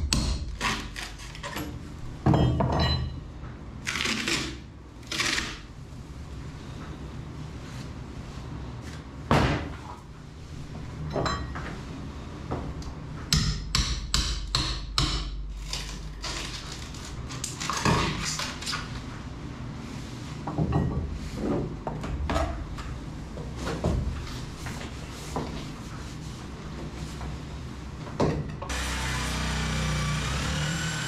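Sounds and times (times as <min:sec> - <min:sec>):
hammer striking boat hull: 0:13.3 - 0:15.4.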